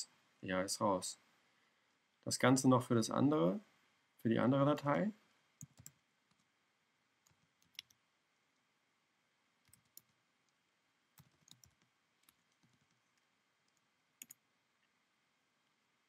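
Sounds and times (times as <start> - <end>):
faint keystrokes on a keyboard: 7.3 - 8.0, 11.2 - 14.4.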